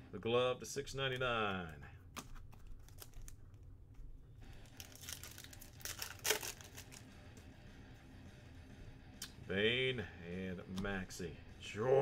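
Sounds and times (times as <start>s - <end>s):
wrapper crinkling and tearing: 2.2s - 3.7s, 4.4s - 7.1s.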